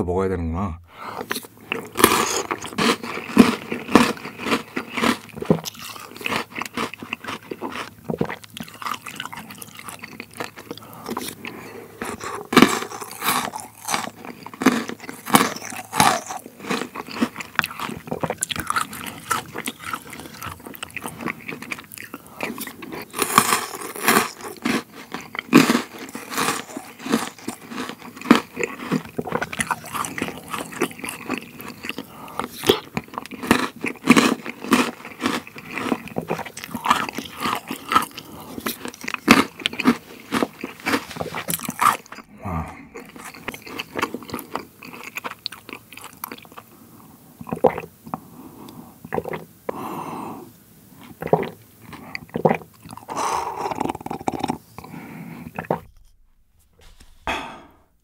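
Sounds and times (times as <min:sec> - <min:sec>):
crunching and chewing: 0:01.1 - 0:56.2
wet mouth sounds: 0:47.4 - 0:48.3, 0:49.0 - 0:49.9, 0:51.1 - 0:56.2, 0:57.3 - 0:57.9.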